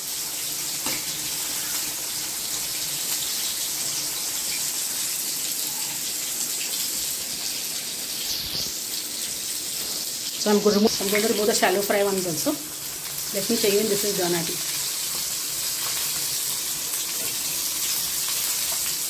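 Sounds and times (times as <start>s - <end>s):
fish deep-frying in hot oil: 0.0s - 19.0s.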